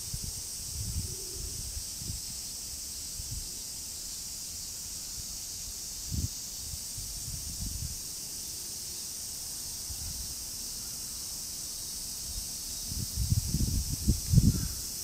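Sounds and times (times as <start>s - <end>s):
wind rumble on microphone: 0.0s - 3.6s, 6.0s - 8.0s, 12.2s - 15.0s
high-pitched insect chorus: 0.0s - 15.0s.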